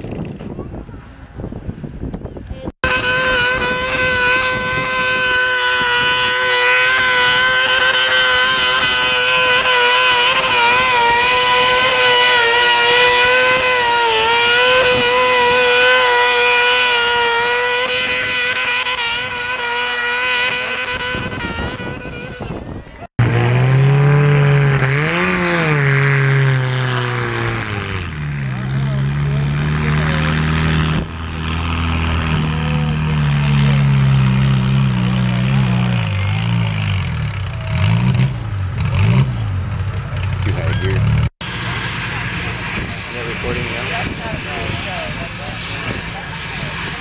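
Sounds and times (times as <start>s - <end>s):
lower tractor engine revving: 2.7s - 47.0s
lawn tractor engine high revs: 2.8s - 47.0s.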